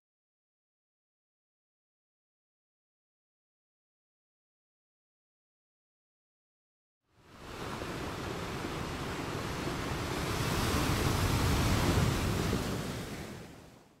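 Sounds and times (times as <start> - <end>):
wind: 7.0 - 14.0
waves rushing: 7.2 - 13.9.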